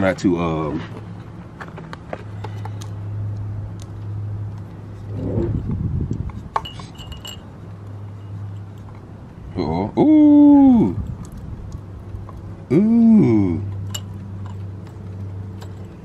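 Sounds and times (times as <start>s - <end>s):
light clicks and metallic clinks: 6.2s - 9.1s, 11.0s - 12.6s, 13.6s - 16.0s.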